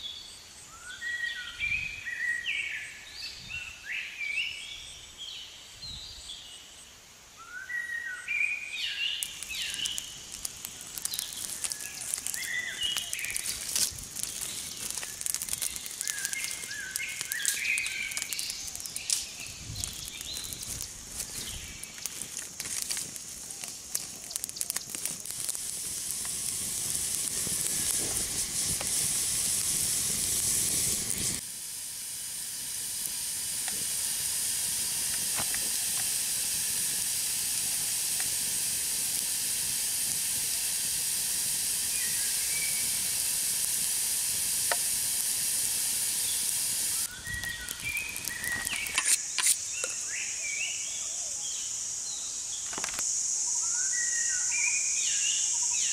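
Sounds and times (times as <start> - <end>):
steam hissing and sizzling: 0.0 - 55.9
fire crackling and popping: 8.6 - 50.0
sharp clicks: 9.2 - 29.0, 46.4 - 50.0.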